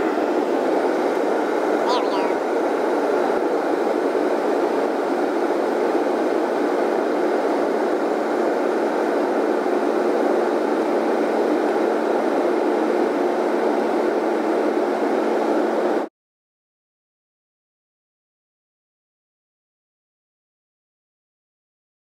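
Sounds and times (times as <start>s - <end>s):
airliner cabin noise: 0.0s - 16.0s
faint steady hum: 0.0s - 16.0s.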